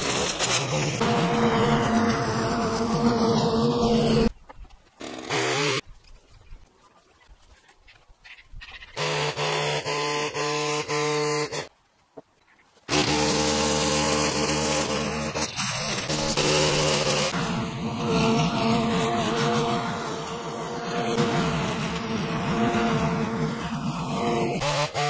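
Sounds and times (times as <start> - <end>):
lawn mower engine running: 0.0 - 4.3, 12.9 - 25.0
line trimmer engine running: 0.0 - 4.3, 9.0 - 11.7, 12.9 - 25.0.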